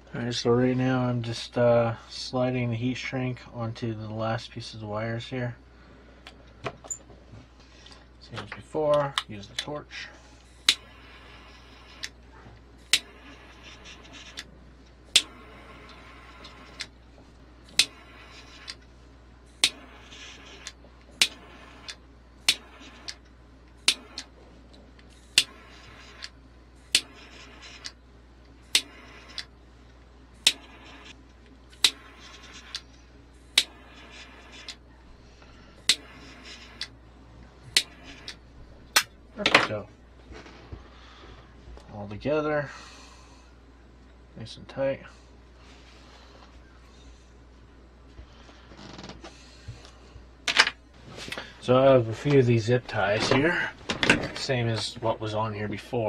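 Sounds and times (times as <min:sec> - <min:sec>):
gas flame hissing: 0:06.2 - 0:41.6, 0:48.2 - 0:56.0.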